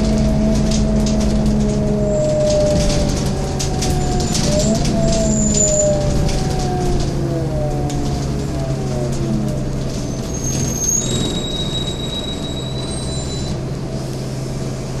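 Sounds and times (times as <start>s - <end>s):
bus diesel engine humming: 0.0s - 15.0s
high-pitched brake squeal: 4.0s - 6.0s, 10.0s - 13.6s.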